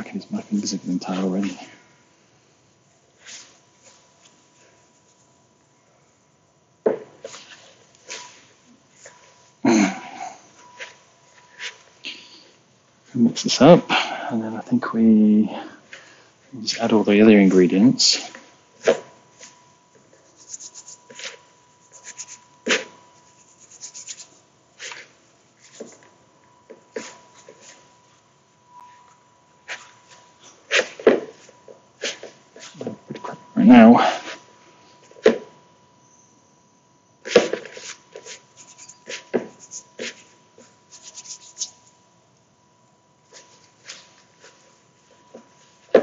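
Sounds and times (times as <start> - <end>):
fingertips rubbing flour rustles: 20.2 - 25.0, 37.8 - 40.3, 40.9 - 41.8.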